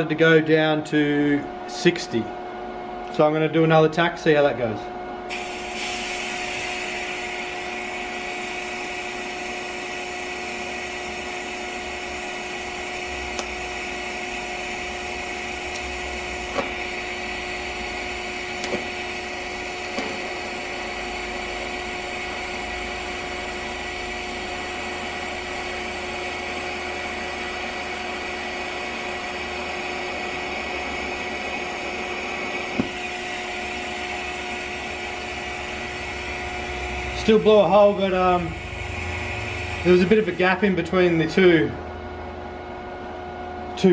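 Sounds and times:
welding arc hissing and whining: 5.3s - 41.8s
sharp welding pops: 13.3s - 13.7s, 15.6s - 20.9s, 32.6s - 33.2s.

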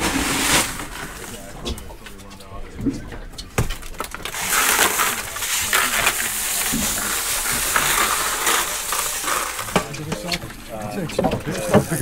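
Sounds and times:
crushed ice rattling: 0.0s - 1.5s, 3.9s - 10.3s, 11.5s - 12.0s.

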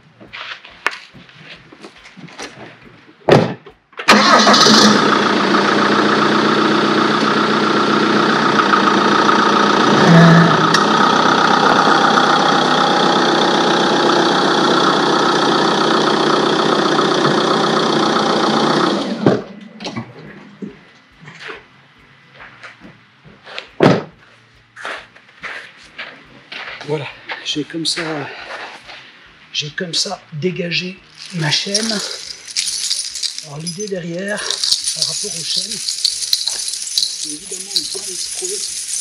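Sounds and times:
diesel engine running: 4.1s - 19.6s.

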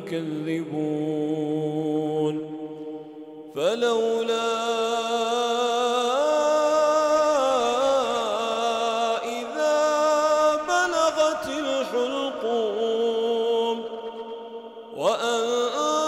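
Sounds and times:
man chanting melodically: 0.0s - 2.6s, 3.5s - 16.0s.

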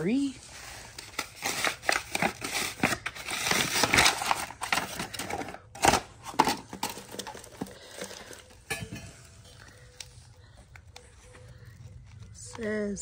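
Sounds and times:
cardboard tearing and crinkling: 0.7s - 8.7s.

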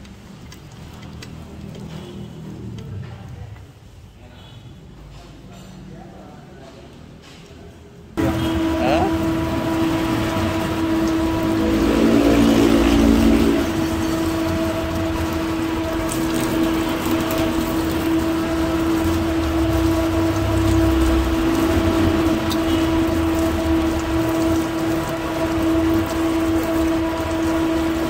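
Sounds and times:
mechanical hum: 7.2s - 28.0s.

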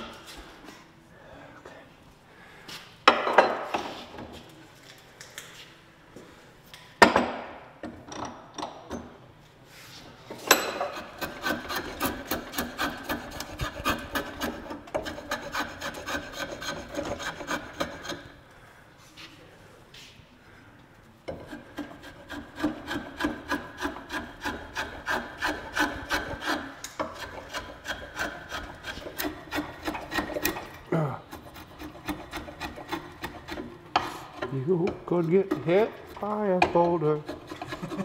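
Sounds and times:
draw knife scraping wood: 10.8s - 18.3s, 21.3s - 38.0s.

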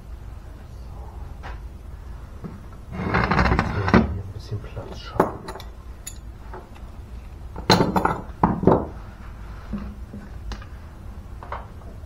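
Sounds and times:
metal tools clinking on workbench: 4.9s - 6.3s, 7.6s - 8.3s.

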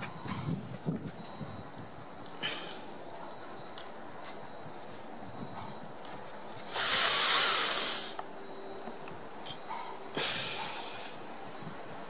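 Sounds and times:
spray hissing: 6.6s - 8.2s, 10.1s - 11.2s.

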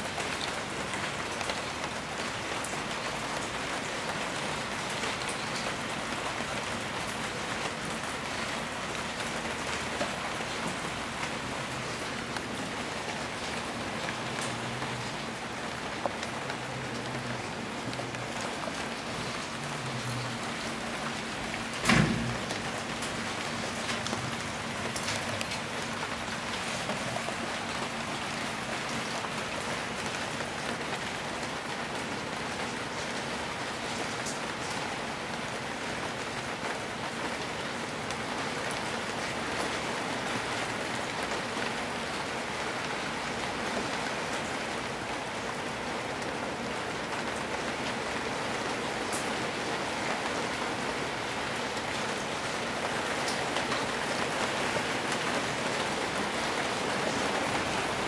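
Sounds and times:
rain on roof tiles and paving: 0.0s - 58.0s.

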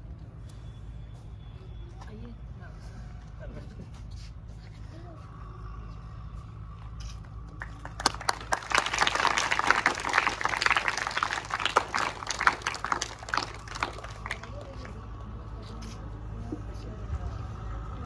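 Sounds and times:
audience clapping: 7.6s - 15.1s.

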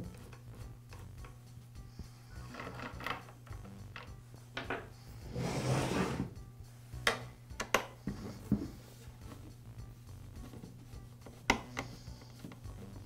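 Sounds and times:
chainsaw scraping on wooden bench: 5.3s - 6.3s.

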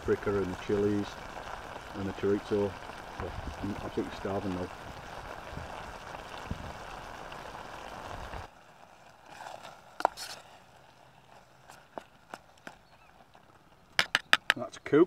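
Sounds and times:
stew bubbling in pot: 0.0s - 12.0s.

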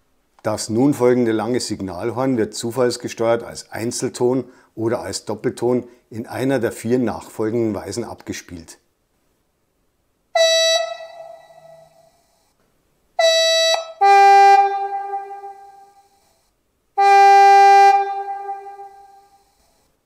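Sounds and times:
locomotive horn through loudspeaker: 10.4s - 12.0s, 13.2s - 16.0s, 17.0s - 19.4s.

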